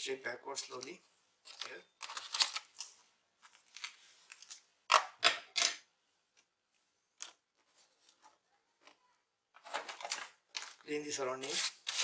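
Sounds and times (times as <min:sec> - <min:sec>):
scraping and rustling handling noise: 0:07.3 - 0:12.0.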